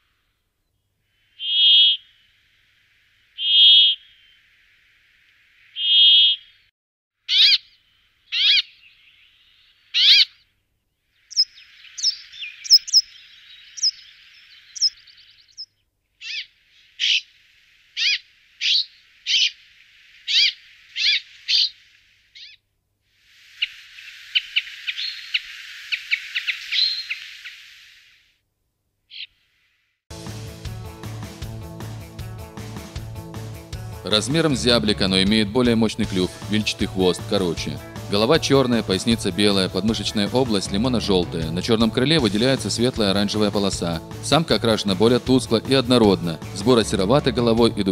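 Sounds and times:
faint background hiss: 0:00.0 - 0:03.4, 0:07.6 - 0:30.0
bird calls and chirps: 0:00.6 - 0:02.2, 0:03.4 - 0:04.4, 0:05.7 - 0:06.7, 0:07.3 - 0:10.5, 0:11.2 - 0:17.4, 0:18.0 - 0:22.6, 0:23.6 - 0:27.8, 0:29.1 - 0:29.4.

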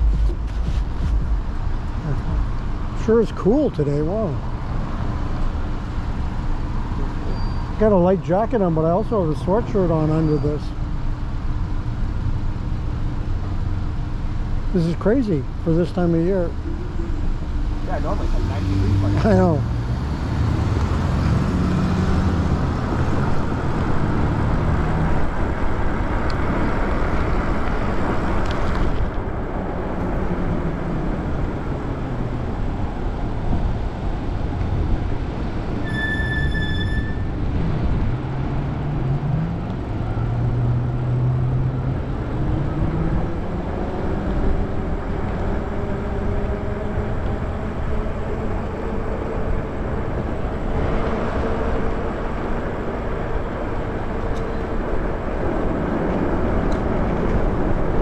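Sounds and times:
road noise: 0:00.0 - 0:58.0
wind rushing over microphone: 0:19.6 - 0:35.8
short high beep: 0:35.8 - 0:37.3.

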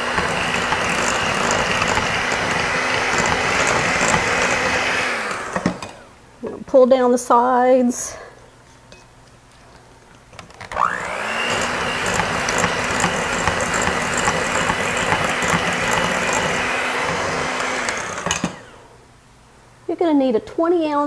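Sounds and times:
electric hand mixer whirring: 0:00.0 - 0:06.1, 0:10.7 - 0:18.9.

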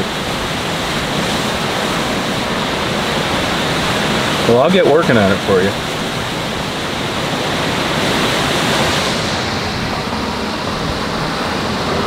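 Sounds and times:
storm wind and rain rushing: 0:00.0 - 0:12.0.

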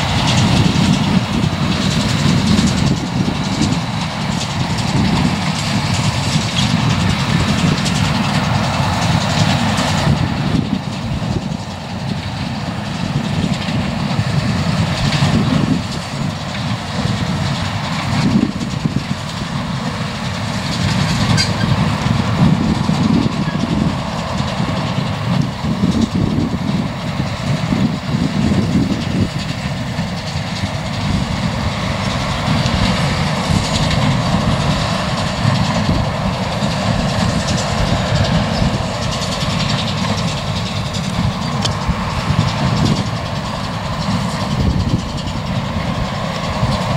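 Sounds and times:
tractor engine running under load: 0:00.0 - 0:46.9.

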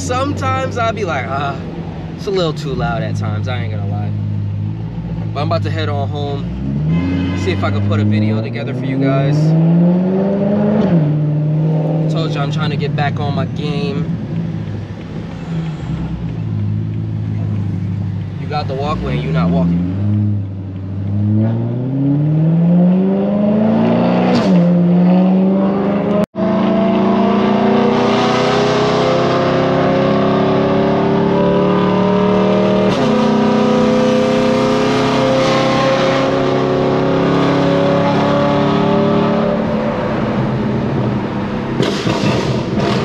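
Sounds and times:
loud car engine accelerating: 0:04.1 - 0:43.0.

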